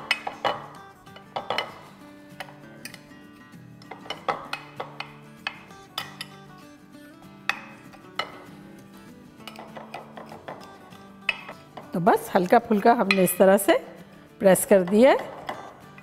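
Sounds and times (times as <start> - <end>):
metal cup clinking on glass: 0.0 - 3.0, 3.8 - 6.4, 9.4 - 10.7, 11.3 - 11.9, 13.0 - 13.5
soft background music: 0.0 - 16.0.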